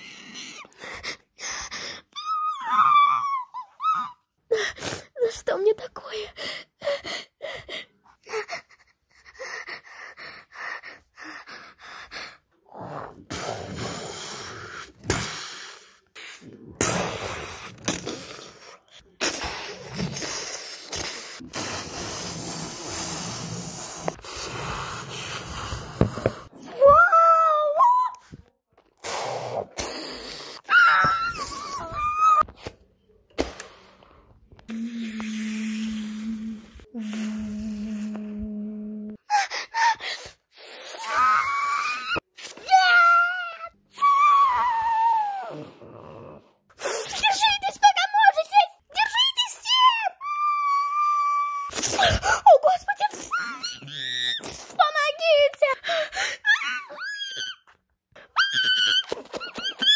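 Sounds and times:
person gasping and panting: 6.1 - 12.5, 39.1 - 40.9, 55.8 - 56.6.

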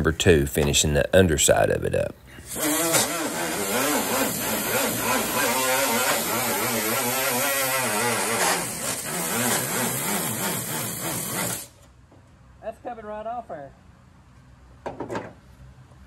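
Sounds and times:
air sander on steel: 2.4 - 11.8.

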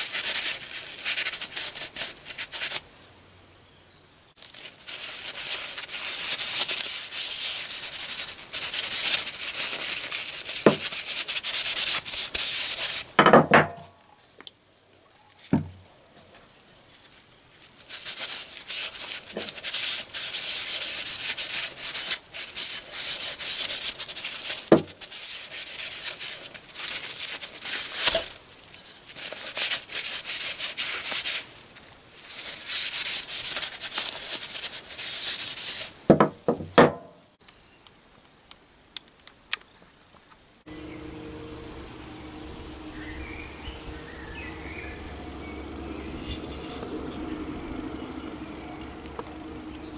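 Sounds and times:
paper towel scrubbing metal: 0.0 - 2.8, 4.5 - 13.2, 17.6 - 36.0.

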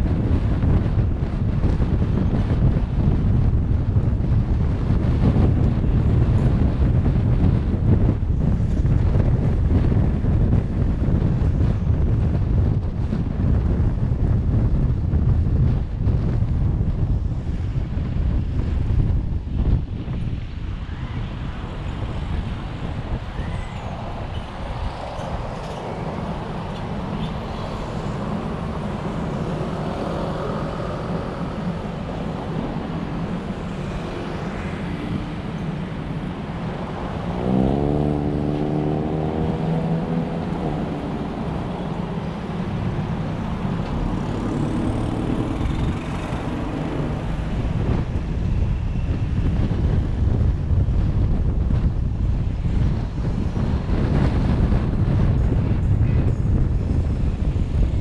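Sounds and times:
engine and tyres rumbling: 0.0 - 58.0
engine revving up: 37.2 - 41.4.

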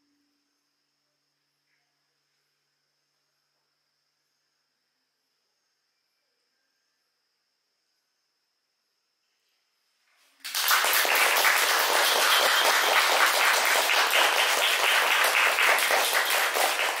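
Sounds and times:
audience applauding: 10.4 - 17.0.

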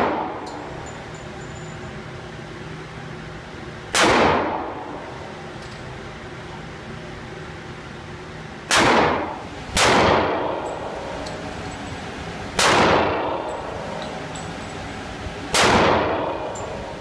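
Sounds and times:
pistol shots echoing indoors: 3.9 - 5.1, 8.7 - 11.6, 12.5 - 14.0, 15.5 - 16.9.

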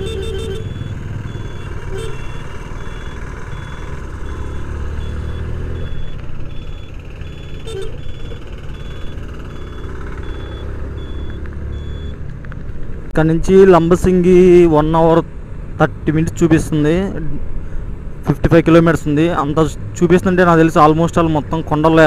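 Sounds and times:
faint high beep: 0.0 - 12.2
motorcycle engine rumble: 0.0 - 13.2
road and wind noise: 0.0 - 22.0.

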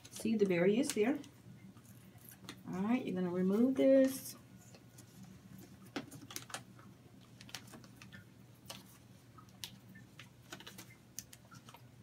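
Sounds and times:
plastic film crinkling: 3.5 - 12.0.

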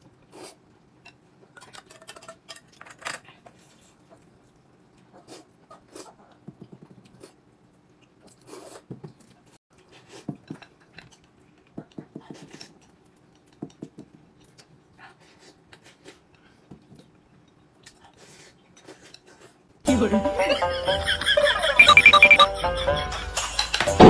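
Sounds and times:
person chewing and smacking: 6.2 - 14.9.

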